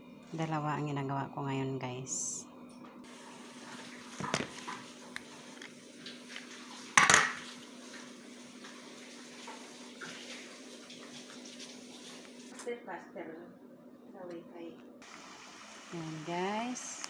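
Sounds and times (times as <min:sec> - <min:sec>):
steady low hum: 0:00.0 - 0:08.4
kitchenware clatter: 0:07.0 - 0:07.5.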